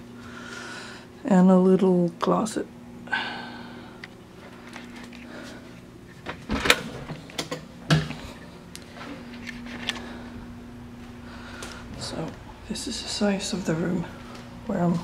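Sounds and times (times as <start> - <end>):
low hum: 2.6 - 15.0.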